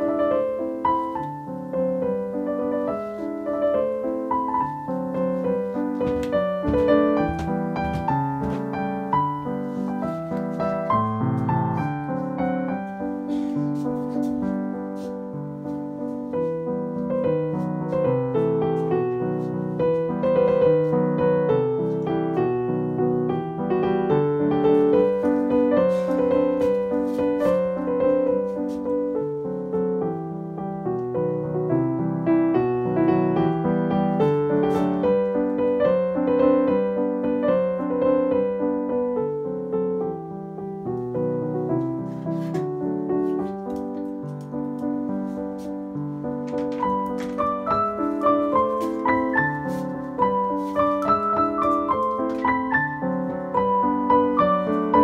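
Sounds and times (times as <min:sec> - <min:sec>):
gentle piano melody: 0:00.0 - 0:55.0.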